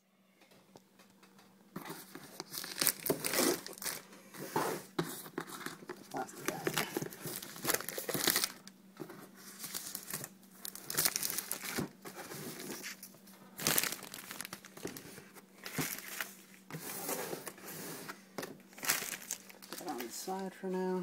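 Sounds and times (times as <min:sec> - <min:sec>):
plastic wrapping crinkling: 0:01.3 - 0:04.2, 0:05.1 - 0:16.7, 0:18.6 - 0:20.5.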